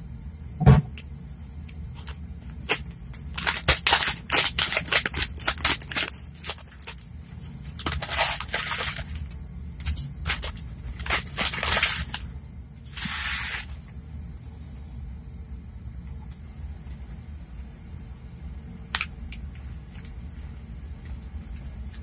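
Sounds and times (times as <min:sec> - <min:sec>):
plastic packet crinkling: 0:03.2 - 0:07.1, 0:07.7 - 0:09.2, 0:10.2 - 0:12.2.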